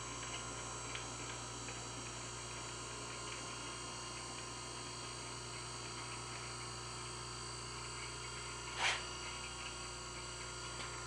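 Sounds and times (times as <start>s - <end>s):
surface grinder humming and whining: 8.3s - 9.7s
brief hiss: 8.8s - 9.1s.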